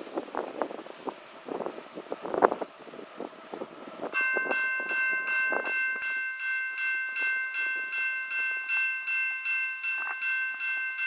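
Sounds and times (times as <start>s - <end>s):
crossing warning bell ringing: 2.7s - 11.0s.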